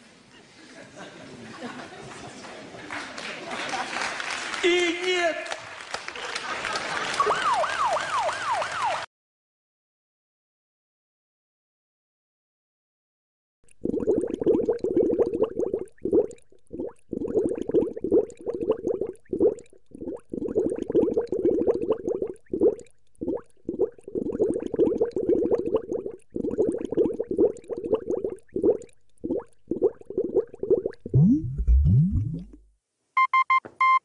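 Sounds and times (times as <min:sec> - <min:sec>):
bubbling and gurgling: 0:13.7 - 0:32.7.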